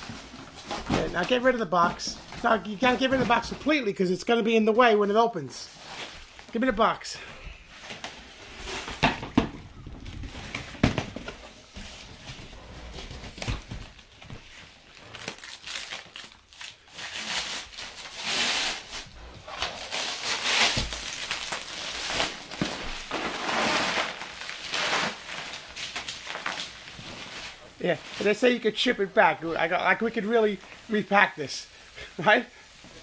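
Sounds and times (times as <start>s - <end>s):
plastic wrapping crinkling and tearing: 7.8s - 33.0s.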